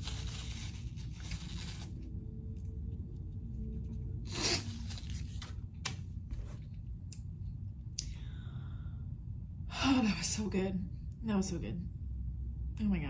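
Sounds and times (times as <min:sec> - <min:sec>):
paper napkin rustling: 0:00.0 - 0:02.0, 0:04.2 - 0:06.6
steady low hum: 0:00.0 - 0:13.0.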